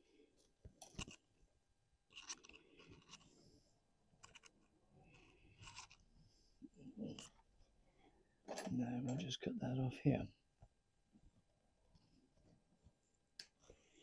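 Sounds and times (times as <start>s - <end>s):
wire clicking and scratching: 0.6s - 1.3s, 2.1s - 3.4s, 4.2s - 6.1s.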